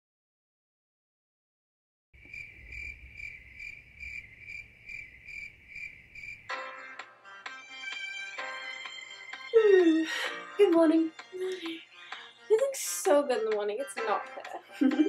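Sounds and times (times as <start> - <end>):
crickets chirping: 2.2 - 6.5
music: 6.5 - 15.0.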